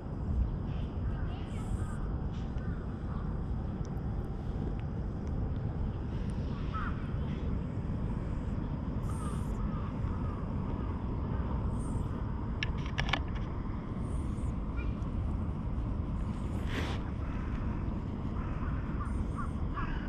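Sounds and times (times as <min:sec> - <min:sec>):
faint bird calls: 0:00.4 - 0:04.0, 0:05.8 - 0:15.4, 0:16.0 - 0:20.0
sharp clicks: 0:12.6 - 0:13.6.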